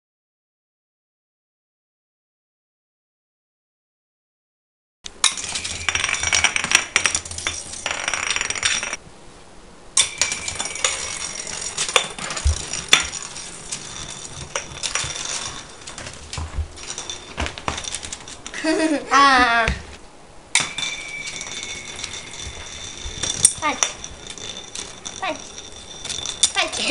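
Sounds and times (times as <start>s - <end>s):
spinning top clicking on floor: 5.1s - 9.0s, 10.0s - 18.6s, 20.6s - 26.9s
spinning top whirring: 5.1s - 9.0s, 10.0s - 18.8s, 20.6s - 26.9s.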